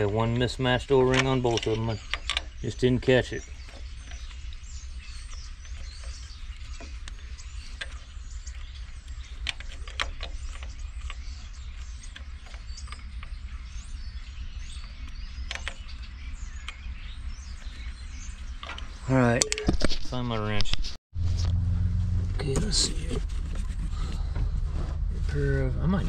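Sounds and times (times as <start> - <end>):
low hum: 21.2 - 26.0.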